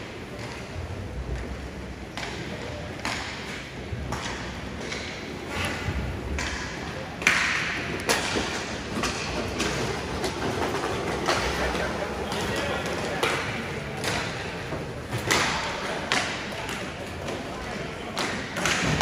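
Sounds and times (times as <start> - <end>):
voices: 4.2 - 19.0
skates scraping ice: 7.2 - 19.0.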